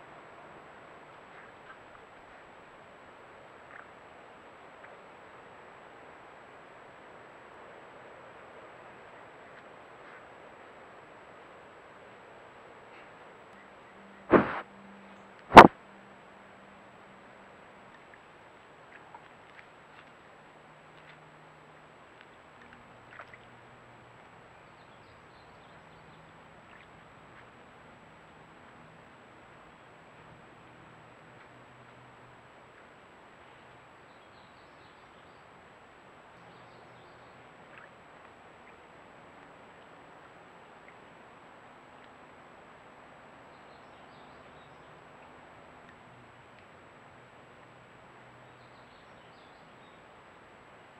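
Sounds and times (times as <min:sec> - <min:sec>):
faint recording hiss: 0:00.0 - 0:50.9
high electronic whine: 0:14.3 - 0:14.6.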